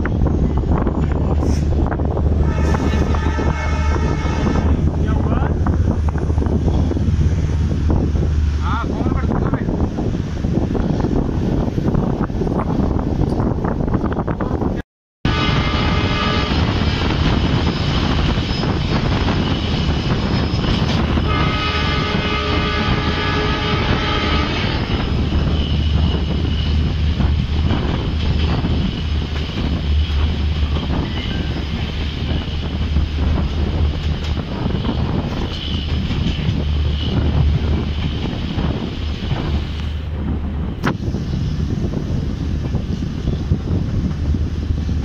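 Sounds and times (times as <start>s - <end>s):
wheels rumbling on rails: 0.0s - 45.0s
wind rushing: 0.0s - 45.0s
locomotive horn blast: 2.4s - 4.9s, 15.3s - 16.8s, 21.1s - 26.2s.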